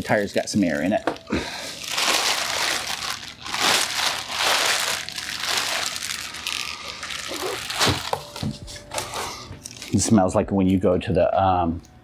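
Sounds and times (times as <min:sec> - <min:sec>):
plastic bag crinkling: 0:00.0 - 0:10.2.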